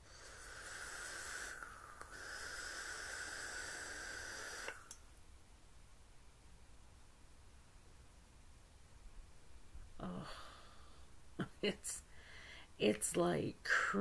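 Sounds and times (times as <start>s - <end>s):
e-cigarette atomizer hissing: 0.0s - 5.1s.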